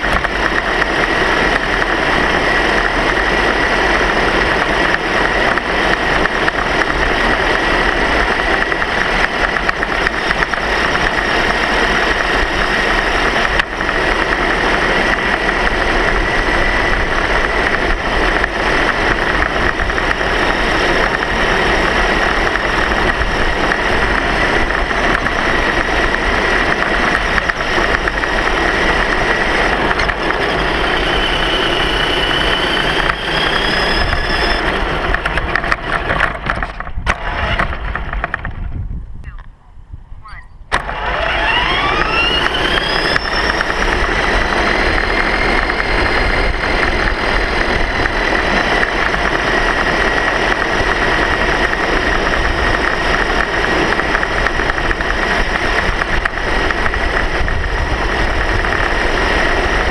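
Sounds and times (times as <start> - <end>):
steady whine: 0.0 - 59.9
vehicle engine running steadily: 0.0 - 59.9
faint high whine: 25.3 - 35.3, 39.2 - 49.7.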